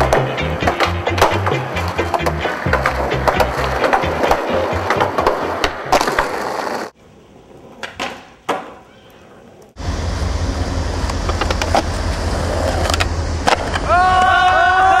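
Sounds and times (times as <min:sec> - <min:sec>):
skateboard clacks: 0:00.0 - 0:06.9, 0:07.6 - 0:09.0
skateboard wheels rolling on concrete: 0:00.0 - 0:15.0.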